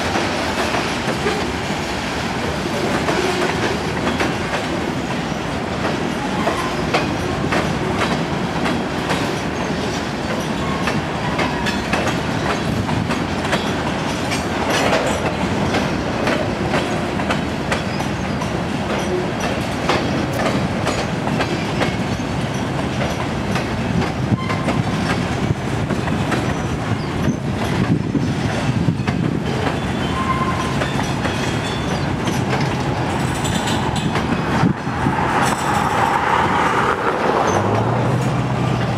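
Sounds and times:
train wheels rumbling on rail: 0:00.0 - 0:38.9
wheel squeals: 0:28.9 - 0:32.6.

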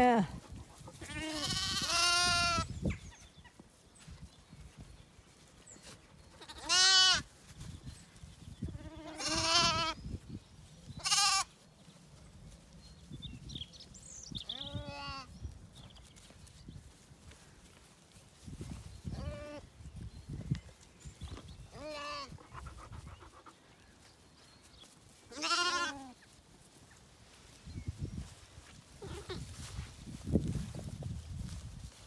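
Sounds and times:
lambs bleating: 0:01.0 - 0:02.7, 0:06.3 - 0:07.3, 0:08.7 - 0:10.0, 0:11.0 - 0:11.6, 0:14.5 - 0:15.3, 0:19.1 - 0:19.7, 0:21.7 - 0:22.6, 0:25.3 - 0:26.2, 0:29.0 - 0:29.5.

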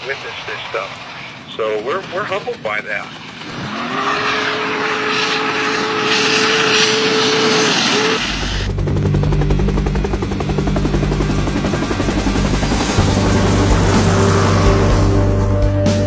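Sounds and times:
steam hiss: 0:00.0 - 0:01.8
helicopter rotor and engine: 0:00.0 - 0:16.0.

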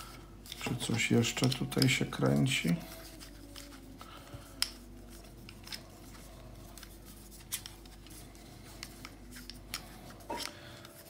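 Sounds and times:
plastic puzzle pieces clicking: 0:00.5 - 0:02.0.

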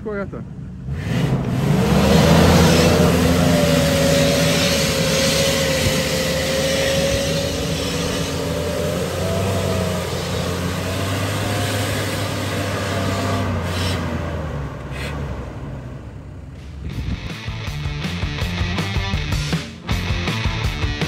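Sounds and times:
car engine running hard: 0:00.0 - 0:21.0
whine: 0:01.4 - 0:14.0.

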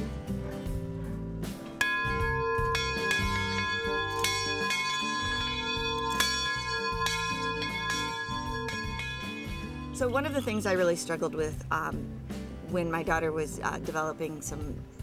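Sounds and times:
background music: 0:00.0 - 0:15.0
large bell ringing: 0:01.8 - 0:10.7.

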